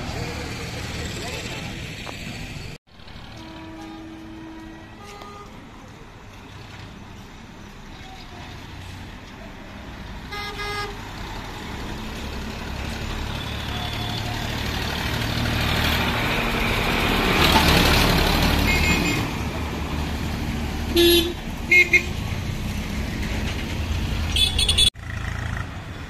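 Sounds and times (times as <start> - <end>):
vehicle horn toot: 10.3 - 11.0, 13.4 - 14.4, 18.7 - 19.2, 20.9 - 22.1, 24.4 - 24.9
tractor diesel engine passing: 10.9 - 26.0.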